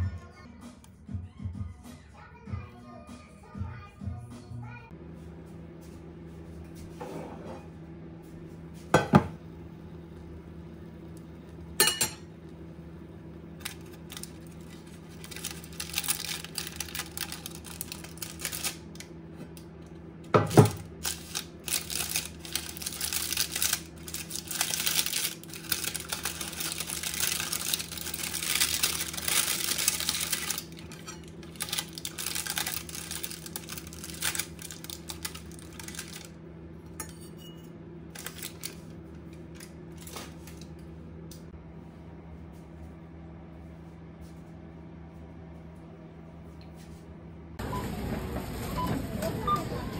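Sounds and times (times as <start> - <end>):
steady low hum: 0.0 - 49.9
dishware clinking: 11.8 - 12.3
utensils clattering and scraping: 20.4 - 36.3, 36.9 - 40.7.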